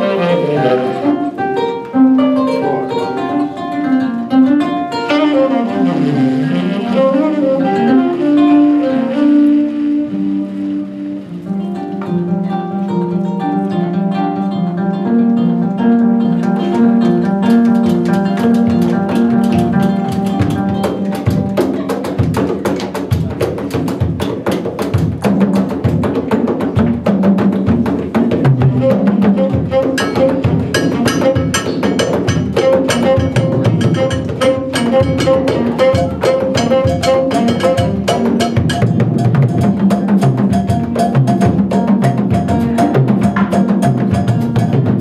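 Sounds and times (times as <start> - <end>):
kora plucking repeating figure: 0.0 - 6.4, 27.1 - 45.0
double bass: 0.0 - 20.9, 27.5 - 45.0
hand drums: 0.0 - 45.0.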